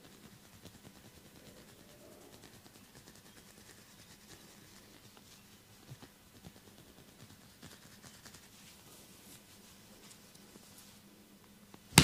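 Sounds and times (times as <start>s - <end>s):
hands rubbing on skin: 0.0s - 11.0s.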